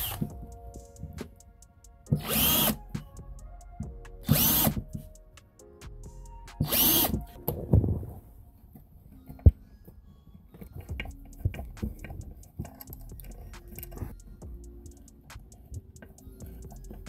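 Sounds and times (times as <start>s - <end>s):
cordless drill drilling into wood: 0.0s - 0.3s, 2.1s - 2.8s, 4.3s - 4.8s, 6.6s - 7.2s.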